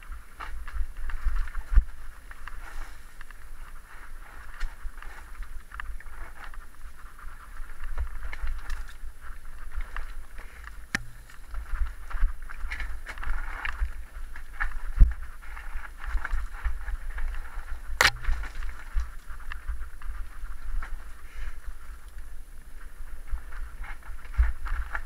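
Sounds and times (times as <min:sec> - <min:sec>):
mountain bike rattling: 0:00.0 - 0:22.0
low rumbling buffeting: 0:10.9 - 0:12.0.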